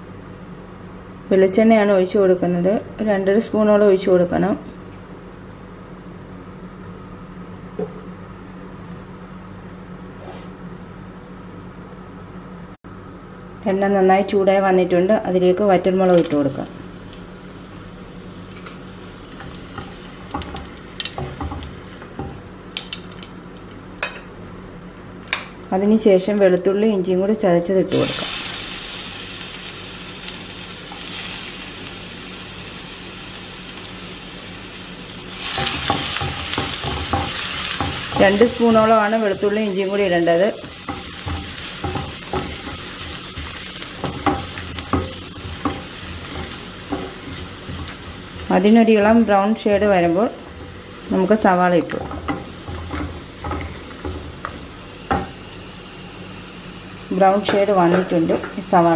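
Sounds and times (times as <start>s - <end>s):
chillies frying in oil: 16.1s - 24.2s, 27.9s - 58.9s
spatula knocking and scraping pan: 19.4s - 22.4s, 35.5s - 39.5s, 40.8s - 55.4s.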